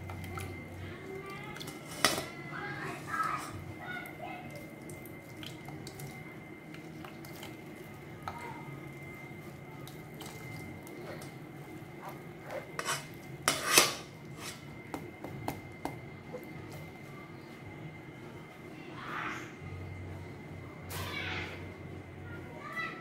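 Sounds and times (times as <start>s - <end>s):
spatula scraping mesh strainer: 12.0s - 14.6s.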